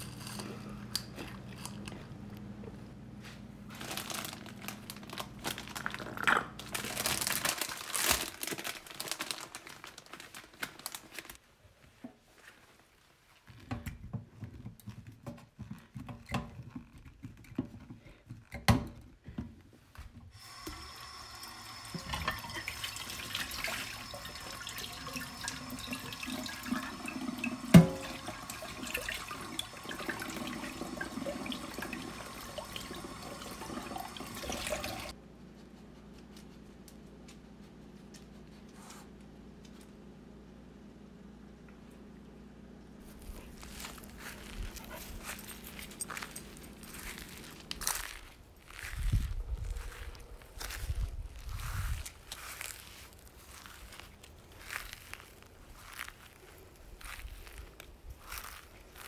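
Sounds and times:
tap running: 20.4 - 35.1.

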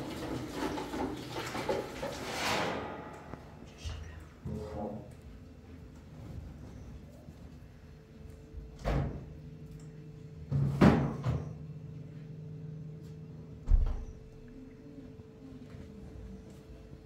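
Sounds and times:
kitchen knocks and clatter: 0.0 - 3.5, 10.5 - 11.5
low steady hum: 2.5 - 17.0.

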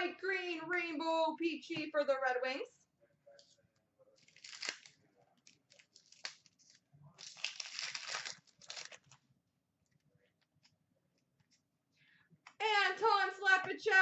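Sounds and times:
wrapper torn and crinkled: 4.2 - 9.2.

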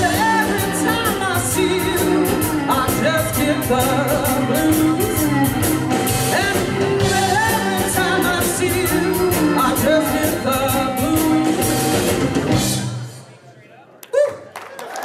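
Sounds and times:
harmonica bending notes: 0.0 - 12.5
blues band playing: 0.0 - 13.3.

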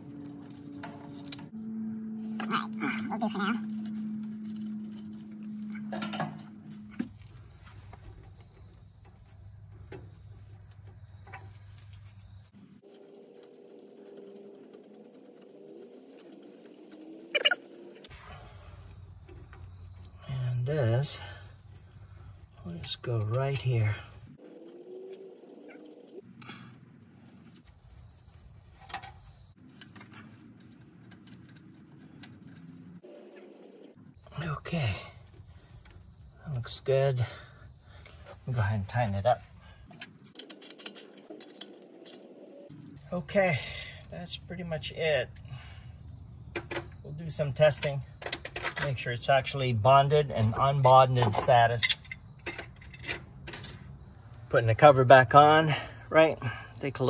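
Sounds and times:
gloved hands handling wires: 0.0 - 1.5, 2.3 - 17.3, 21.2 - 34.0, 35.2 - 36.6, 37.7 - 43.2
low steady hum: 0.0 - 40.4
small handling ticks: 27.3 - 43.4.

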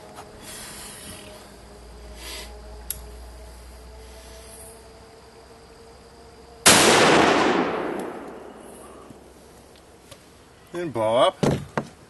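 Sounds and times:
rifle shot with rumbling echo: 6.6 - 9.3.

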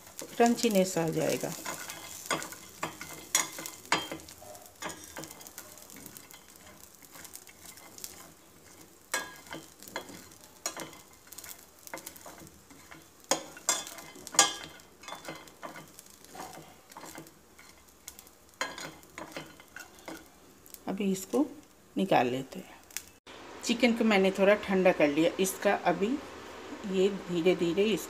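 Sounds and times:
metal spatula scraping a pan: 0.0 - 20.8
light sizzle: 0.0 - 28.0.

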